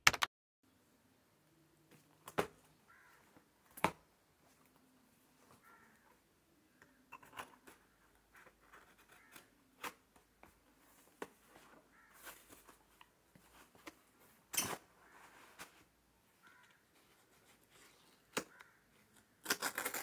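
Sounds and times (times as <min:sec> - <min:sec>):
cardboard rustling: 0:10.8 - 0:15.9
cutting tool slitting packing tape: 0:19.4 - 0:20.0.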